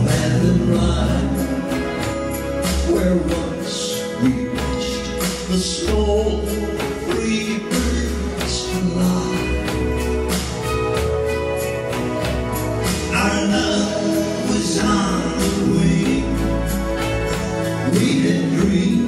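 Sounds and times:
men singing a ballad: 0.0 - 1.8, 13.1 - 16.8, 17.8 - 19.0
low bass: 0.0 - 19.0
strummed acoustic guitar: 0.0 - 19.0.

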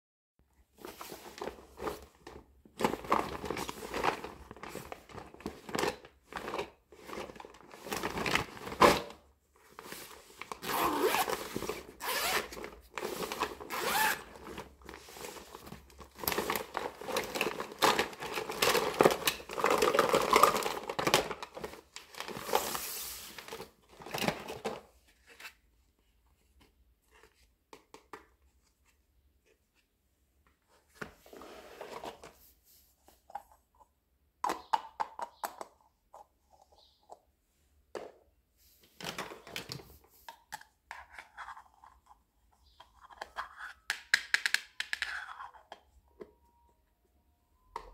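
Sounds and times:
vinyl bag rustling: 0.8 - 24.3
zipper being pulled open: 10.6 - 11.3, 12.0 - 12.5, 13.7 - 14.3.

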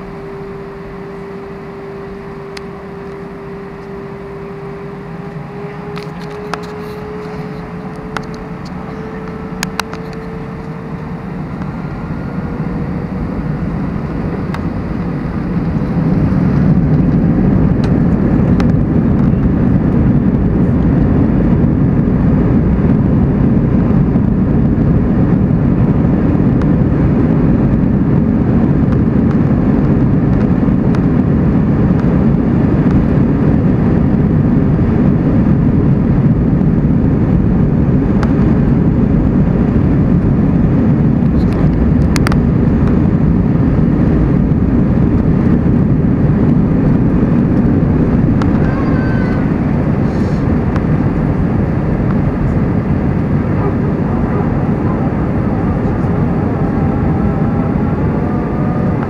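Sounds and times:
jet engines roaring in cabin: 0.0 - 59.0.

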